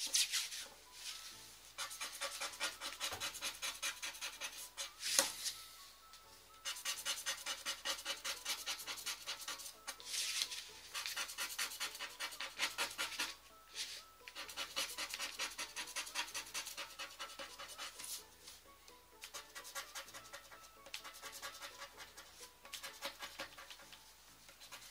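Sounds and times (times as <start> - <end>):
scratch card being scratched: 1.8 - 5.3, 6.7 - 13.4, 14.3 - 18.2, 19.3 - 24.9.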